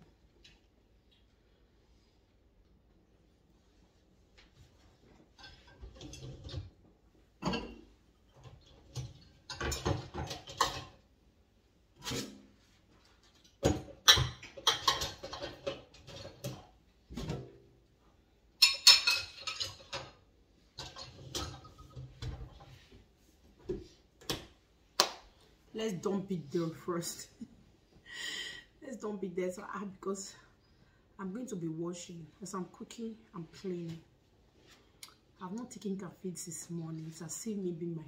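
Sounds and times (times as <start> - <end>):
dishes and pots clinking: 5.3 - 6.8, 7.4 - 11.0, 13.4 - 17.6, 18.6 - 22.9.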